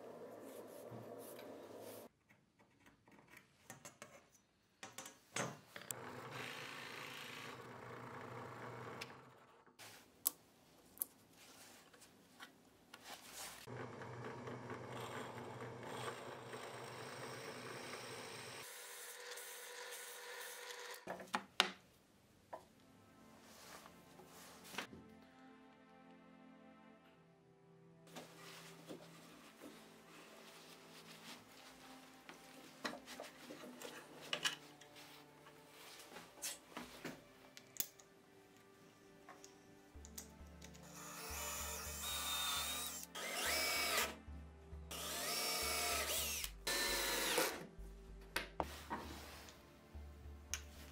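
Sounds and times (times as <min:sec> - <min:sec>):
drill press boring into wood: 0:13.7 - 0:21.0, 0:40.9 - 0:44.2, 0:44.9 - 0:47.6.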